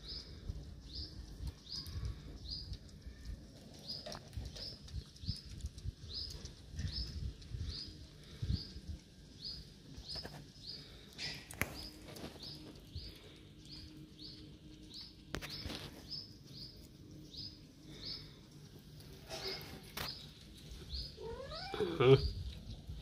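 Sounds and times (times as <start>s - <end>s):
bird chirping: 19.3s - 22.8s.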